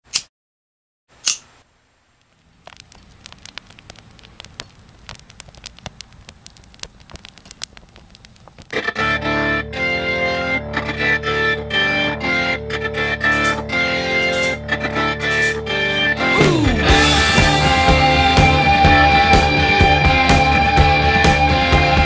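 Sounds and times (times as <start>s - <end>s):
fire crackling and popping: 1.3s - 10.0s, 15.2s - 22.0s
distorted electric guitar music: 4.4s - 22.0s.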